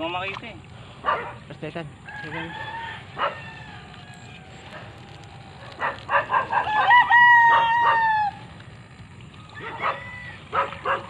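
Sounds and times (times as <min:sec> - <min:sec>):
rooster crowing: 0:02.0 - 0:08.6, 0:09.5 - 0:11.0.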